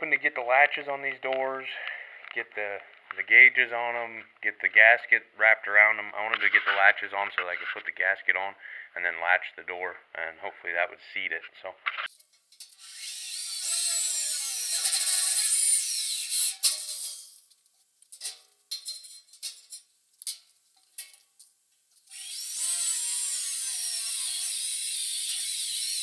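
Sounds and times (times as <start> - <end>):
power tool cutting metal: 12.6 - 17.4, 22.1 - 26.0
metal parts clanking: 18.1 - 21.2.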